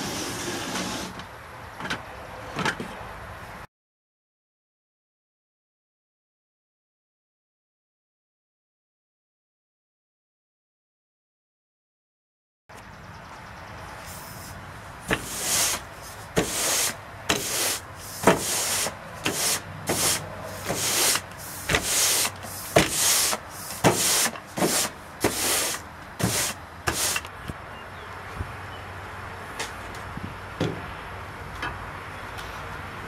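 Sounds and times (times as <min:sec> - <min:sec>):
broom bristles scratching: 0:14.0 - 0:27.3.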